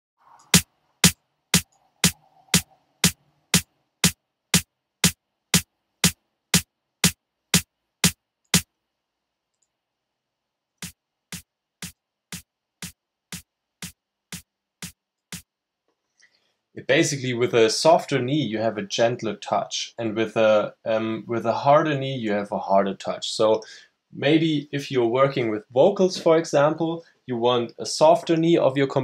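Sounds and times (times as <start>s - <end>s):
snare drum hits: 0.6s - 8.7s.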